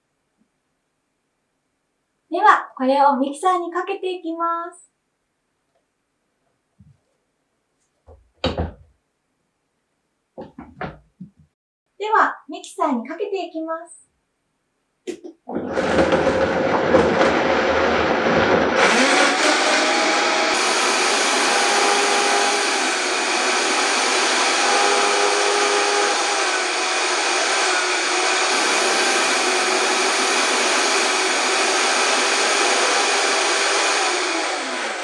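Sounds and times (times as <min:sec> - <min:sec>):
blender chopping chunks rumble: 0:15.5 - 0:35.0
blender whirring: 0:15.5 - 0:35.0.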